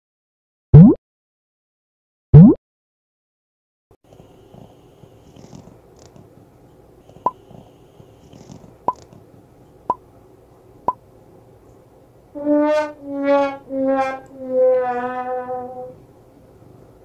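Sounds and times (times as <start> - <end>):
brass wah-wah comedy sting: 12.4 - 16.0.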